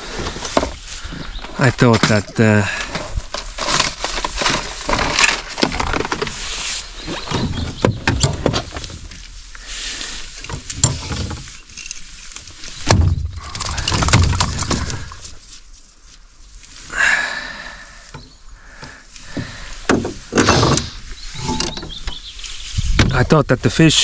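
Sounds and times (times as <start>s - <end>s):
tackle box rattling: 1.8s - 6.4s, 10.4s - 15.4s.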